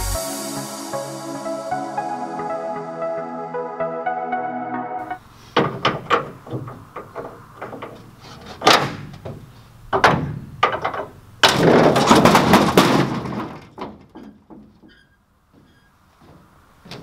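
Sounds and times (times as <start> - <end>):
metal clanks and knocks: 5.5 - 17.0
rapid metal clattering: 5.6 - 14.8.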